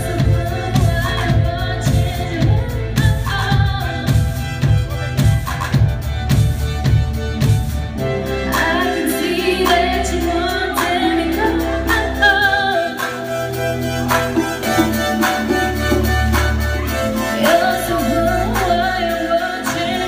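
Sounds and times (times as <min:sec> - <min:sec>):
woman singing: 0:00.0 - 0:04.9, 0:08.5 - 0:13.3, 0:15.5 - 0:20.0
live pop band playing: 0:00.0 - 0:20.0.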